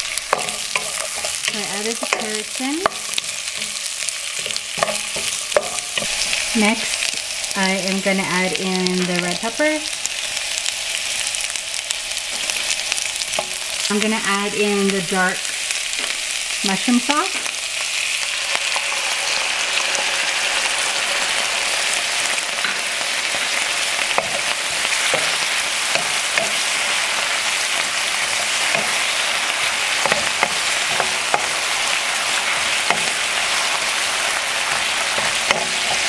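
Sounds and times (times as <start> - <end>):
vegetables sizzling in a wok: 0.0 - 36.0.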